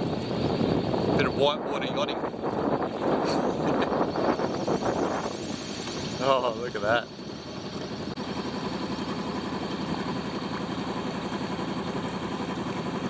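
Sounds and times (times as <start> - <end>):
diesel engine running: 3.1 - 13.0.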